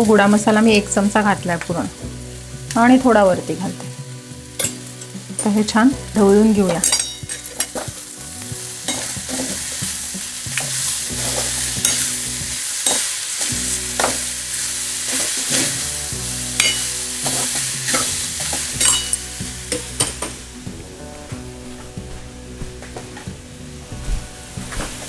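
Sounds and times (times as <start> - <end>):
beans sizzling in oil: 0.0 - 25.0.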